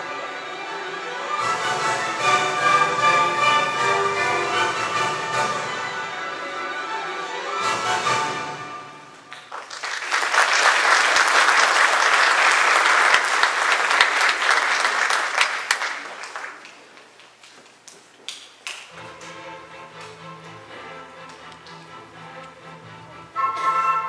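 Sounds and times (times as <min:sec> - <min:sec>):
music: 0:00.0 - 0:09.4, 0:18.9 - 0:24.0
audience applauding: 0:09.3 - 0:17.5.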